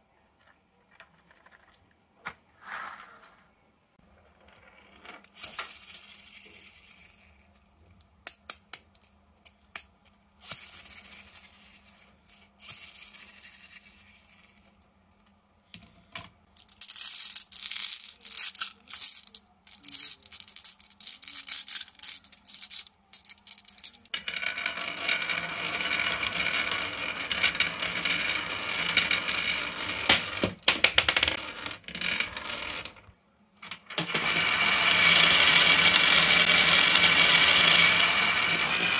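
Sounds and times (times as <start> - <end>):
marbles rolling down wooden track: 4.0 - 7.4, 16.6 - 38.9.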